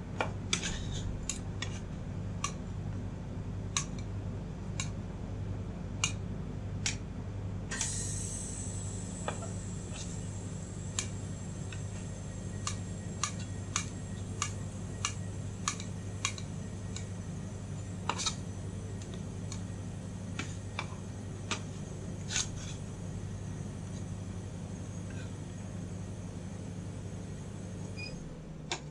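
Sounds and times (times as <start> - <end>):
steady low hum: 0.0 - 28.9
spatulas scraping steel plate: 18.0 - 18.4, 22.2 - 22.8.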